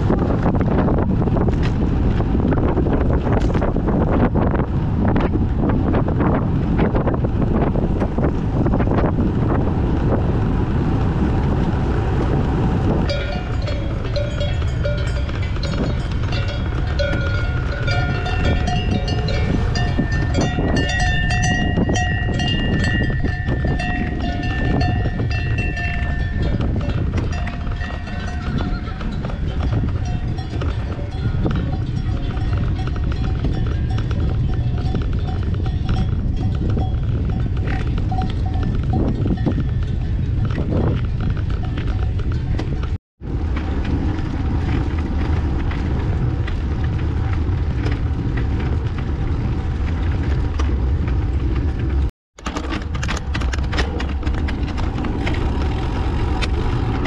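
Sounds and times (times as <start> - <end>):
wind buffeting microphone: 0.0 - 57.0
cowbells clanking: 12.9 - 42.9.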